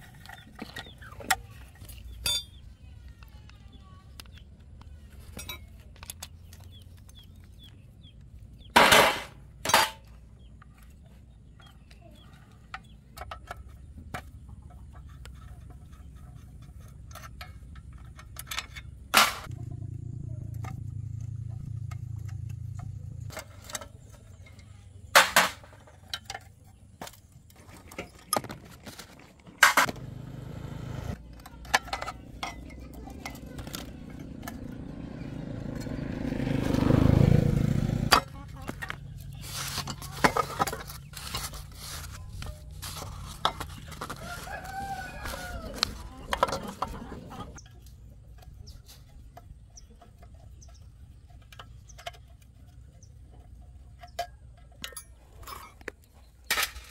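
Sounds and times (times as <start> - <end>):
metal tools clinking: 0.0 - 2.8, 5.2 - 6.7, 8.8 - 10.2, 14.7 - 19.5, 31.2 - 36.0, 45.4 - 56.9
low hum: 15.5 - 24.9.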